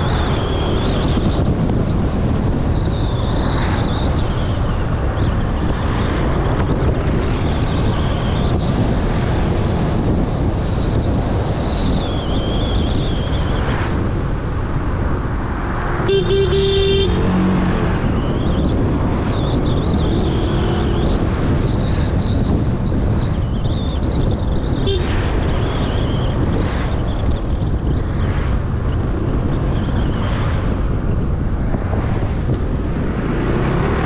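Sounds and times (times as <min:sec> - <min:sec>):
traffic noise: 0:00.0 - 0:34.0
car horn honking: 0:16.0 - 0:17.5, 0:24.8 - 0:25.7.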